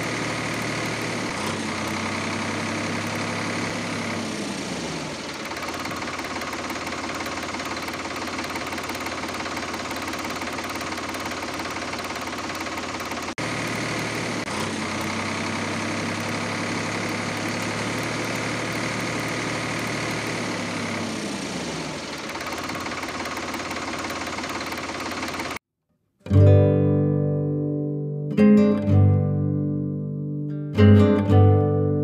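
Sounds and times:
tractor engine idling: 0:00.0 - 0:25.6.

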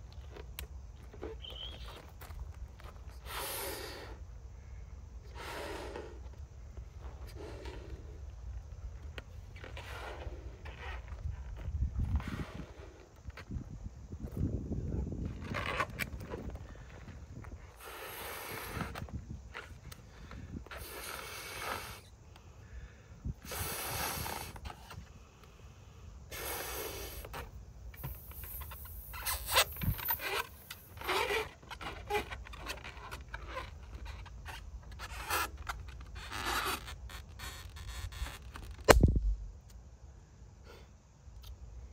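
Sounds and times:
breaths into balloon: 0:03.2 - 0:04.2, 0:17.7 - 0:19.1, 0:20.7 - 0:25.0, 0:26.3 - 0:27.4.

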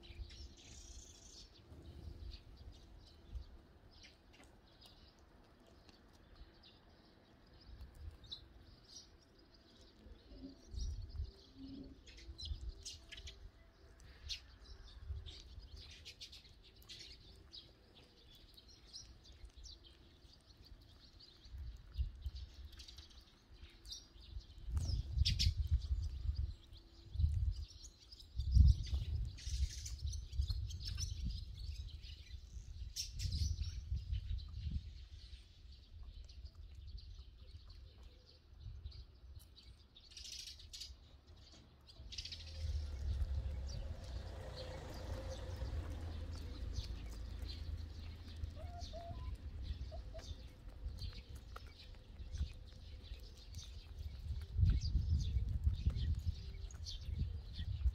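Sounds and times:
sparrows chirping: 0:00.0 - 0:57.9
low rumbling bursts: 0:42.4 - 0:51.2.

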